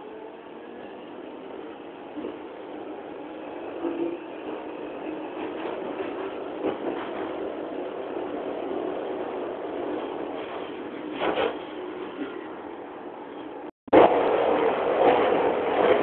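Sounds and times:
train wheels rumbling on rails: 0:01.4 - 0:12.5, 0:13.3 - 0:16.0
rail clicks: 0:03.6 - 0:12.6, 0:13.3 - 0:16.0.

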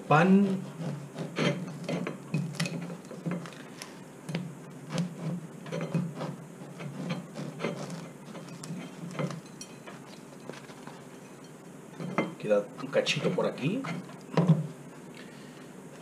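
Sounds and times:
knife sawing crusty bread: 0:00.1 - 0:02.0, 0:04.8 - 0:09.2.

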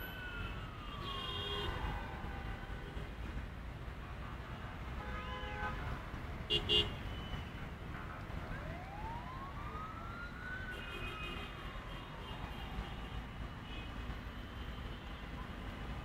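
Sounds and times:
emergency siren wailing: 0:00.0 - 0:03.1, 0:08.2 - 0:13.8
road traffic rumble: 0:00.0 - 0:16.0.

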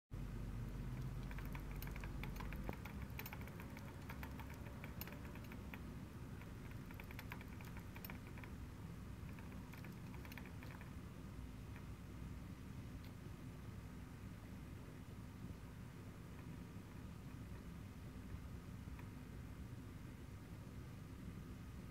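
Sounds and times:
hamster ball clicking on stand: 0:00.8 - 0:08.6, 0:09.2 - 0:11.0.

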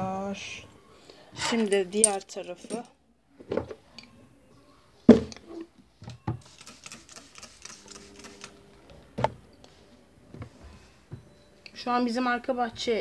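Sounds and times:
spray bottle hissing: 0:06.4 - 0:08.6.

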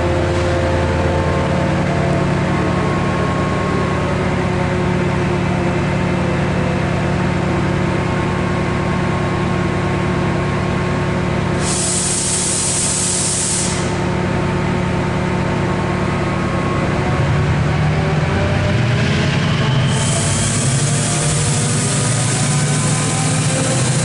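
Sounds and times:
diesel locomotive idling: 0:00.0 - 0:24.0
compressed air hiss: 0:11.6 - 0:14.0.

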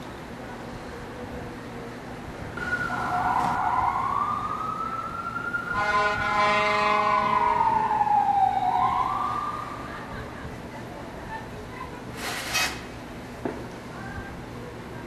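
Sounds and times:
emergency siren wailing: 0:02.6 - 0:10.3
horn blast: 0:05.8 - 0:07.4.

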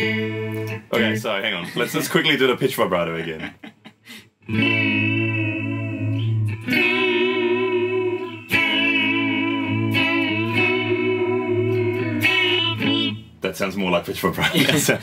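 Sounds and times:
electric guitar chords wavering in pitch: 0:00.0 - 0:01.2, 0:04.5 - 0:13.4.

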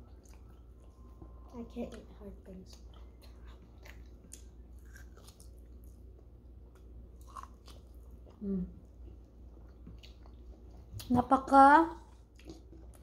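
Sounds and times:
person biting and chewing: 0:02.9 - 0:06.0, 0:06.7 - 0:08.4.

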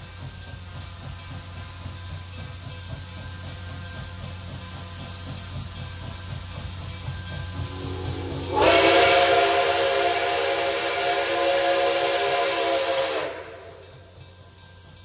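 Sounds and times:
low rumble: 0:07.5 - 0:10.7
steam locomotive whistle blast: 0:07.5 - 0:14.1.

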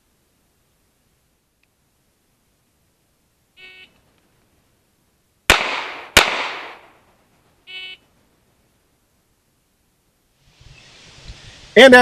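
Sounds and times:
pistol shots: 0:05.5 - 0:07.0.

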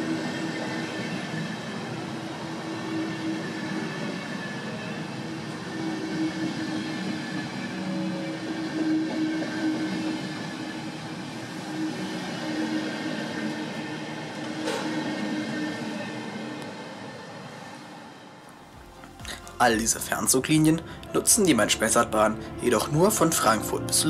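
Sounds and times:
train wheels rumbling on rail: 0:00.0 - 0:17.7.

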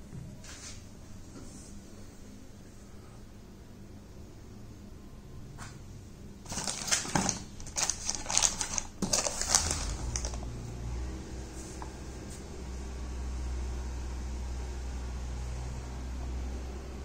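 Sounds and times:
plastic bag and cardboard crinkling: 0:06.4 - 0:10.5.

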